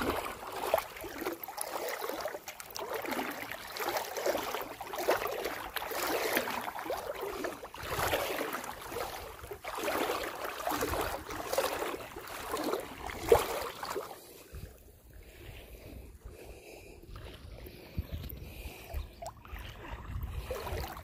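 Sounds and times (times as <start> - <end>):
water splashing around wading legs: 0.0 - 15.4, 17.1 - 21.0.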